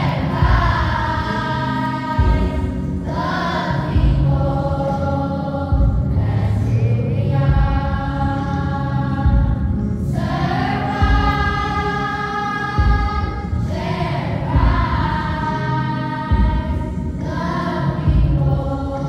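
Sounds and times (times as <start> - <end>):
choir singing a hymn: 0.0 - 19.0
low accompaniment: 0.0 - 19.0.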